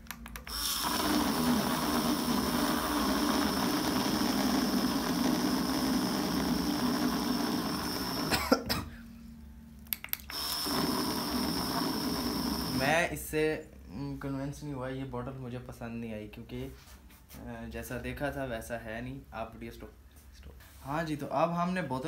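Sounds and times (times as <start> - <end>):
blender whirring: 0.5 - 8.4, 10.3 - 13.0.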